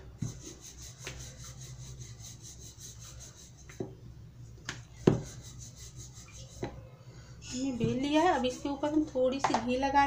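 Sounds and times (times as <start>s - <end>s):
rolling pin rubbing on dough: 0.0s - 4.0s, 4.8s - 6.8s, 7.5s - 9.1s
steady low hum: 0.0s - 10.0s.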